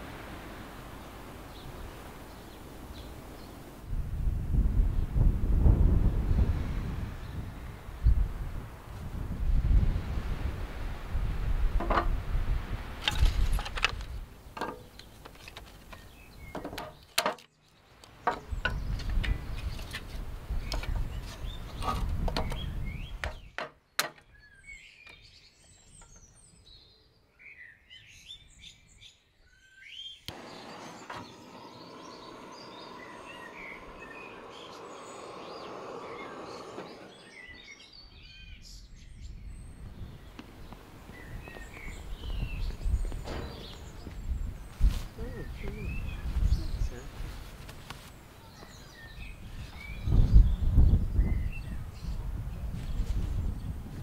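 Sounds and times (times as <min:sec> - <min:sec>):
small birds chirping: 0:00.8 - 0:03.8, 0:13.9 - 0:54.0
wind on microphone: 0:01.5 - 0:14.5, 0:18.4 - 0:23.5, 0:30.4 - 0:47.9, 0:48.5 - 0:54.0.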